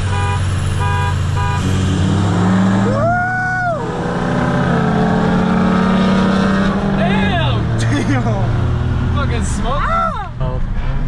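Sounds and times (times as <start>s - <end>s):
car horn toots: 0.0s - 2.0s
car engine revving hard: 0.0s - 9.4s.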